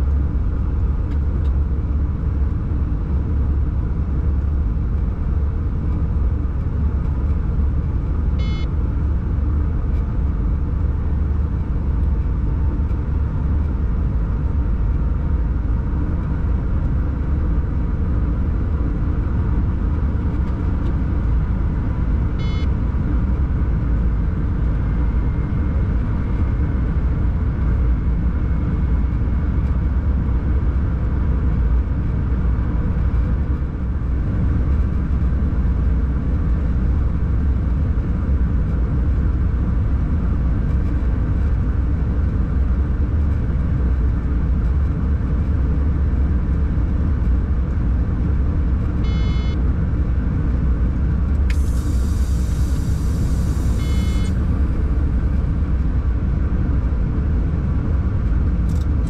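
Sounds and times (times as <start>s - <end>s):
locomotive cab rumble and hum: 0.0s - 59.0s
short electronic beeps: 8.4s - 8.7s, 22.4s - 22.7s, 49.0s - 49.6s, 53.6s - 54.4s.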